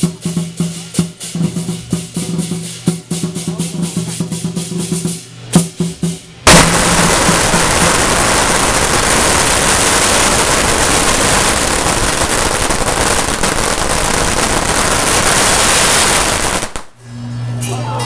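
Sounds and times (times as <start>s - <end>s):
firecrackers crackling: 0.0s - 17.0s.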